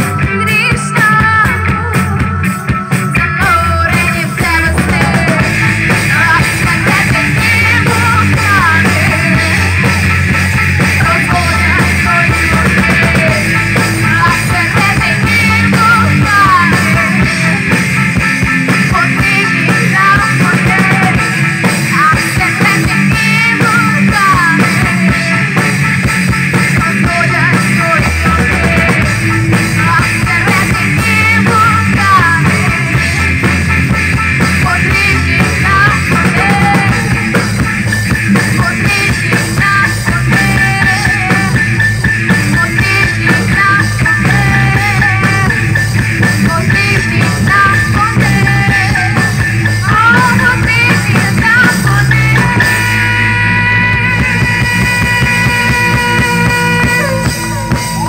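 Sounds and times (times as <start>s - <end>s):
girl singing lead vocal: 0.0s - 58.0s
rock band playing: 0.0s - 58.0s.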